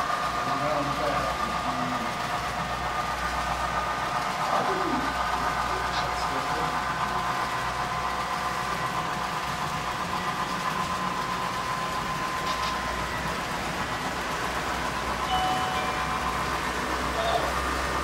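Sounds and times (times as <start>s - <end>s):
model train rolling on track: 0.0s - 18.0s
short high tone: 15.3s - 17.6s.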